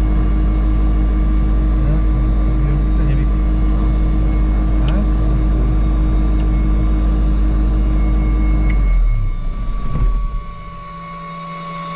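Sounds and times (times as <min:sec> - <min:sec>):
aircraft piston engine idling: 0:00.0 - 0:08.8
propeller running down: 0:00.0 - 0:11.9.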